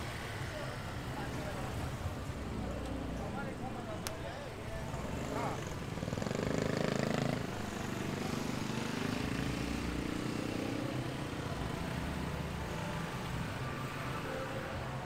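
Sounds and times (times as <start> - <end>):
street noise: 0.0 - 15.0
motorbike engine passing: 4.9 - 11.0.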